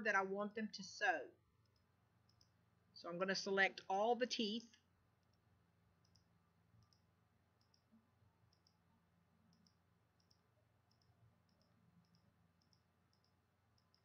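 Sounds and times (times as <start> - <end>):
faint computer mouse clicks: 1.6 - 2.6, 6.0 - 7.9, 8.5 - 8.8, 9.5 - 14.0.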